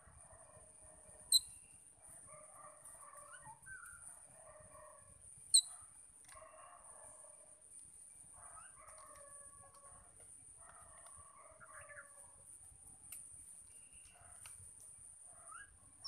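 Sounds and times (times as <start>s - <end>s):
sharp high chirps: 1.3s - 1.6s
birds chattering and calling: 10.9s - 12.4s.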